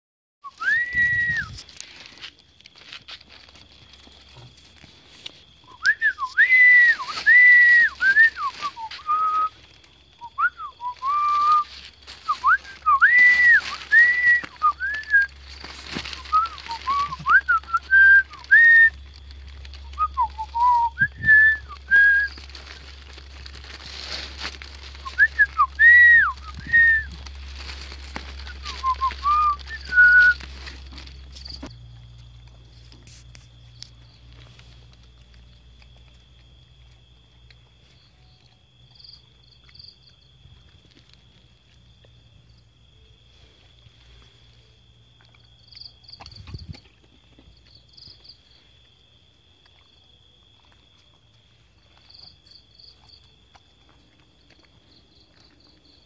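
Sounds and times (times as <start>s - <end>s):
person whistling: 0.4s - 1.6s, 5.6s - 9.6s, 10.2s - 19.0s, 19.8s - 22.5s, 25.0s - 27.2s, 28.3s - 30.5s.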